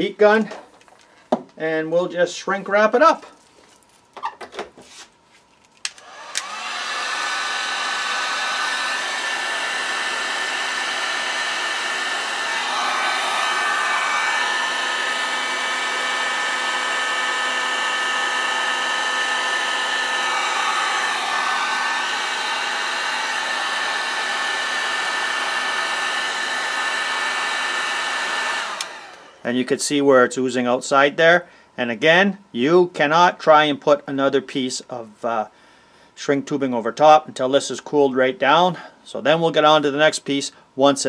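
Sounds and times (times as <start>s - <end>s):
heat gun fan blowing with whine: 5.7s - 30.1s
heat gun switch click: 5.8s - 6.6s.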